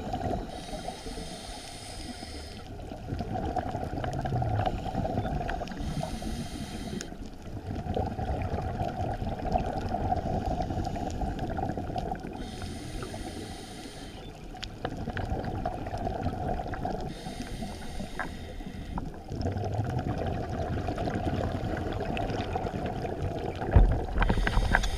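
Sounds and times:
underwater bubbling rumble: 0:00.0 - 0:13.6, 0:14.2 - 0:24.9
diver regulator air hisses: 0:00.5 - 0:02.7, 0:05.8 - 0:07.2, 0:12.4 - 0:14.2, 0:17.1 - 0:19.0.

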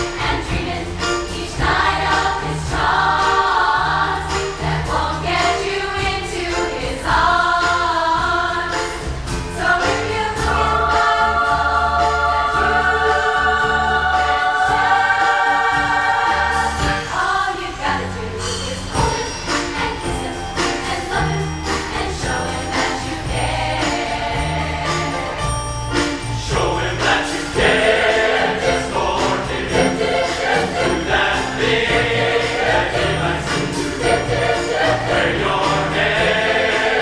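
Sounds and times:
choir singing: 0:00.0 - 0:37.0
orchestra playing: 0:24.9 - 0:37.0.

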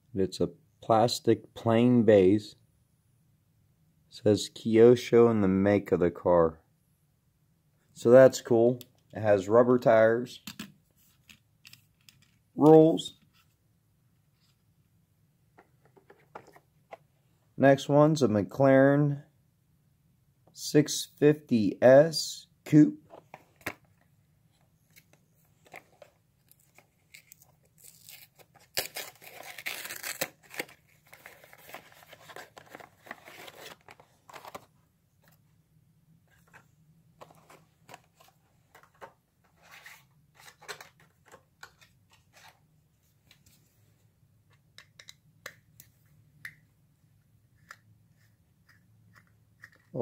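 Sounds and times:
cardboard and plastic tearing: 0:27.1 - 0:34.6.

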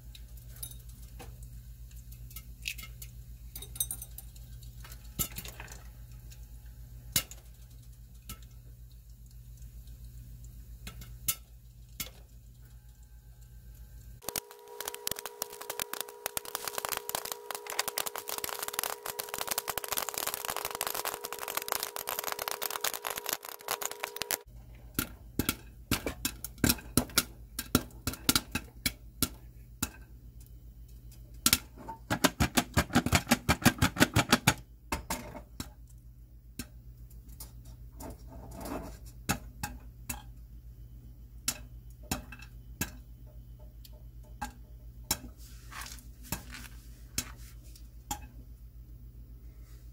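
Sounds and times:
popcorn popping in a saucepan: 0:00.0 - 0:48.7
steady tone: 0:14.2 - 0:24.5.

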